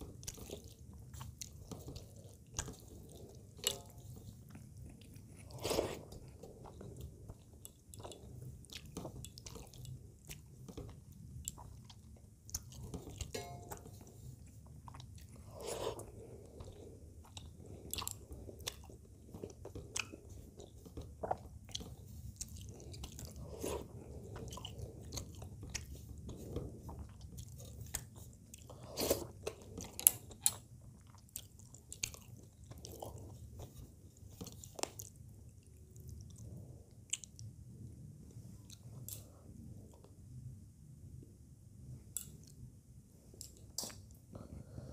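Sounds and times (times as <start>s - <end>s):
wet chewing: 0.0s - 37.5s.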